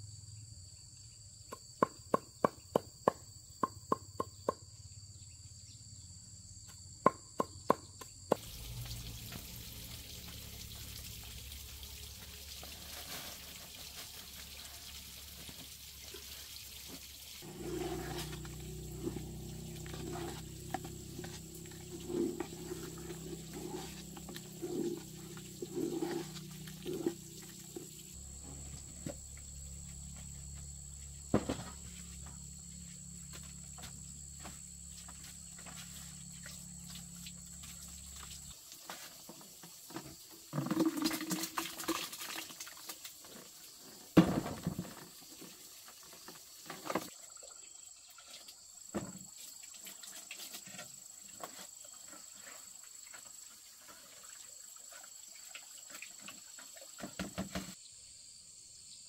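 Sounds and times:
knocks and clatter of kitchen work: 44.2 - 45.1, 57.0 - 57.8.

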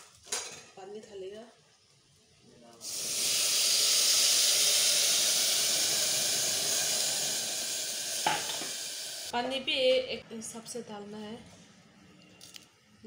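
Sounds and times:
water hissing into steam in hot pot: 2.8 - 9.3.

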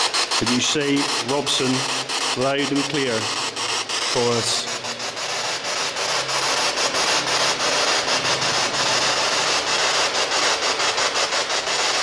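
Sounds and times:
radio static hiss: 0.0 - 6.6
rapid irregular clicks: 0.0 - 12.0.

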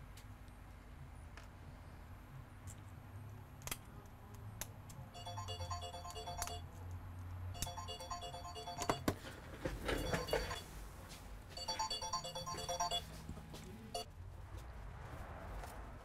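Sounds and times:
phone ringtone beeping melody: 5.2 - 6.7, 7.6 - 9.2, 9.9 - 10.7, 11.6 - 13.2.

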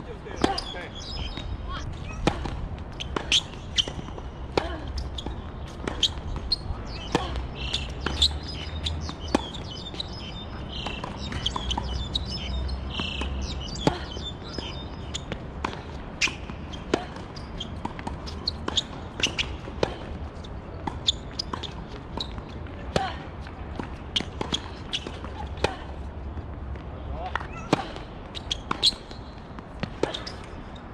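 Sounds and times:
birds chirping: 0.3 - 2.3, 5.2 - 17.7
tennis balls struck and bouncing: 0.3 - 30.9.

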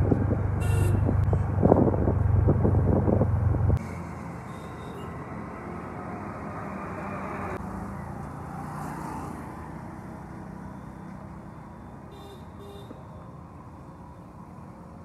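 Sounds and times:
vehicle passing: 0.0 - 11.4
traffic hum: 0.0 - 15.0.

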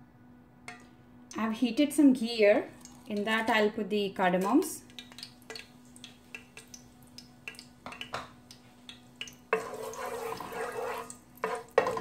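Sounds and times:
continuous sizzle: 0.6 - 12.0
spices popping in hot fat: 4.8 - 10.0
wooden spatula stirring: 7.5 - 12.0.

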